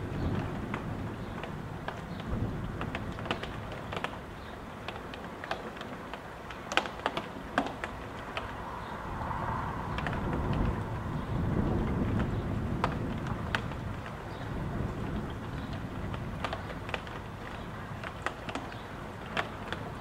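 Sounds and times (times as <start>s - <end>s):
gusting wind rumble: 0.0s - 4.4s, 7.9s - 18.0s
raindrops tapping: 0.0s - 20.0s.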